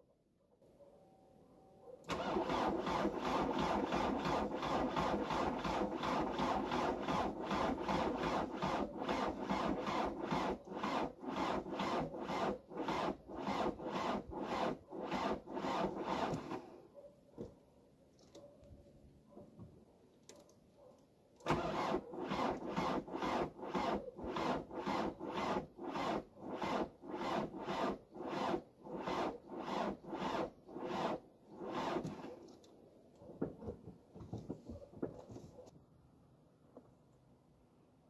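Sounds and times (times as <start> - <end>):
diesel engine cranking slowly: 2.0 - 16.6, 21.4 - 32.2.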